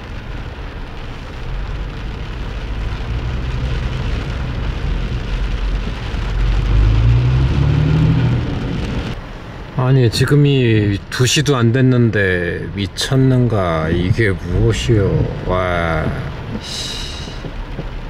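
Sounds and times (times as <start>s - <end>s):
low rumble of engines in traffic: 0.0s - 18.0s
rain on car windshield and roof: 0.0s - 18.0s
engine revving up: 6.1s - 9.2s.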